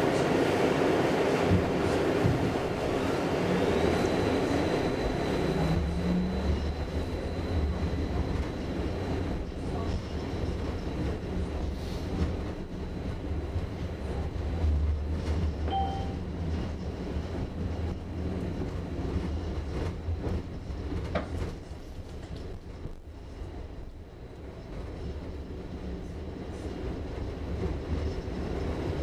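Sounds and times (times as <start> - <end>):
tram wheels rumbling: 0.0 - 29.0
brief beep: 15.7 - 16.2
faint high steady tone: 15.7 - 16.2.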